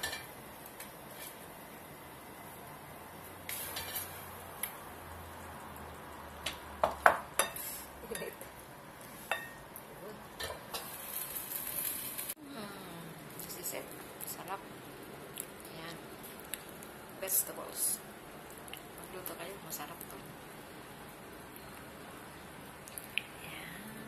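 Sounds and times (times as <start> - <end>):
vegetables sizzling: 0.0 - 24.0
spatula scraping a wok: 1.0 - 1.5, 3.4 - 4.3.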